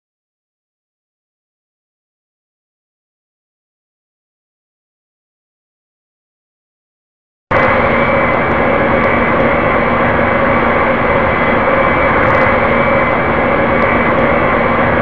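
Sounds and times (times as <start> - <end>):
airliner cabin drone: 7.5 - 15.0.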